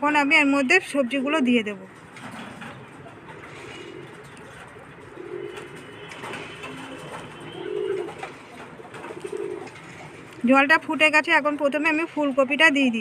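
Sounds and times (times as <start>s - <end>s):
pigeon cooing: 2.5s - 10.4s.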